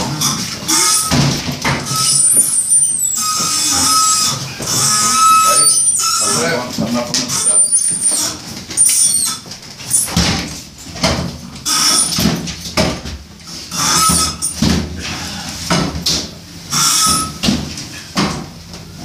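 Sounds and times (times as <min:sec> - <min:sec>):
hand truck bumping and scraping: 0:00.0 - 0:19.0
short high squeaks: 0:00.2 - 0:06.6, 0:07.3 - 0:10.2, 0:11.7 - 0:12.2, 0:13.7 - 0:14.6, 0:16.7 - 0:17.4.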